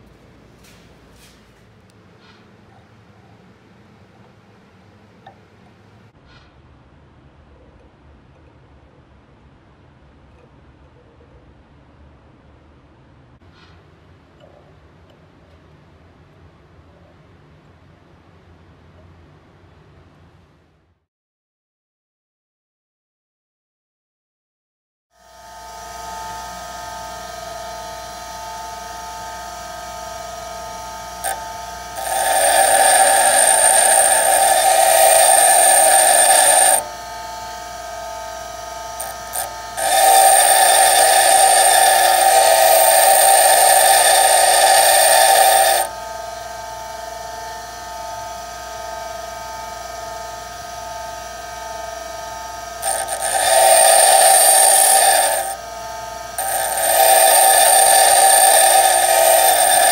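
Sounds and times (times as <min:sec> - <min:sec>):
bench grinder running: 0:25.3 - 0:59.9
drill bit grinding on wheel: 0:25.8 - 0:48.0, 0:52.6 - 0:59.9.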